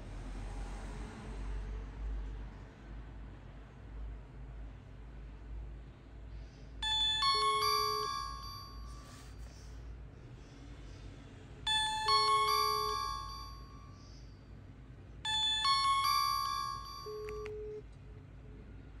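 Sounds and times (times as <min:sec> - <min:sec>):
phone ringtone chiming: 0:06.8 - 0:09.3, 0:11.7 - 0:14.2, 0:15.2 - 0:17.8
low steady ringback beep: 0:06.8 - 0:09.5, 0:11.7 - 0:14.4, 0:15.2 - 0:17.8.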